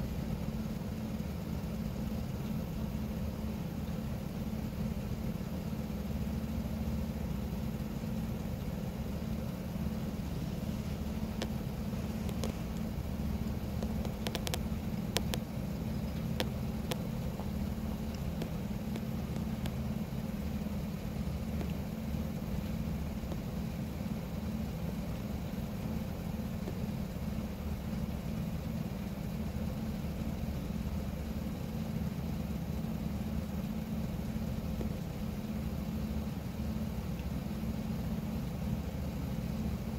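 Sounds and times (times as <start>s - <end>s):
vehicle engine idling: 0.0s - 39.9s
faint clicks: 11.2s - 19.9s.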